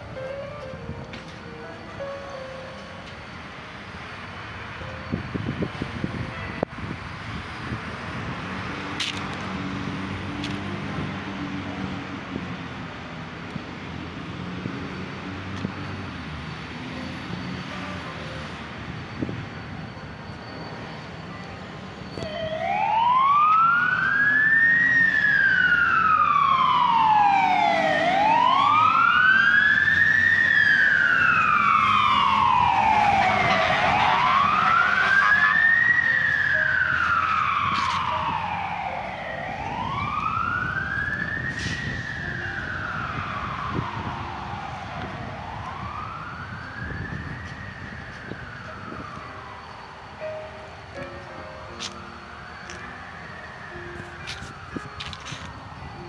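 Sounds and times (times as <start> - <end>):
light road traffic: 0.0 - 56.0
siren wailing: 16.8 - 56.0.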